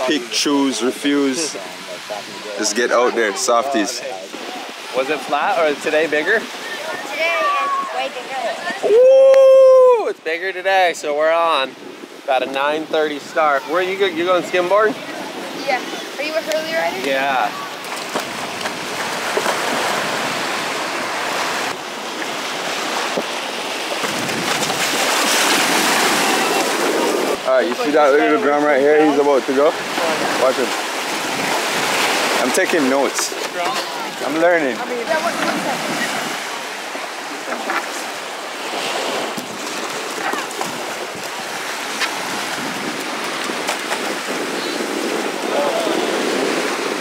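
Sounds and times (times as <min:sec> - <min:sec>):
small surf washing: 0:00.0 - 0:47.0
small waves breaking on sand: 0:00.0 - 0:47.0
wind buffeting microphone: 0:11.3 - 0:47.0.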